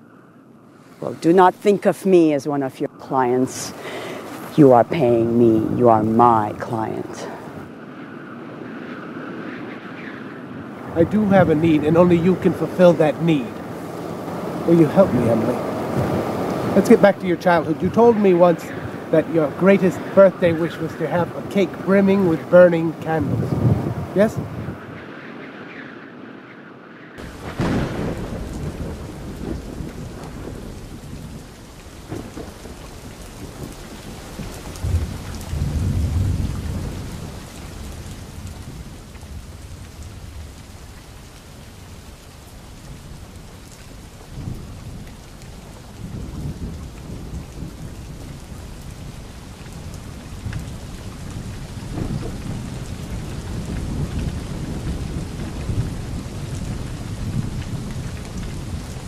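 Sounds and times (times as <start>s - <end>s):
steady rain: 0.0s - 59.0s
rolls of thunder: 10.7s - 25.4s, 27.2s - 40.9s, 46.0s - 59.0s.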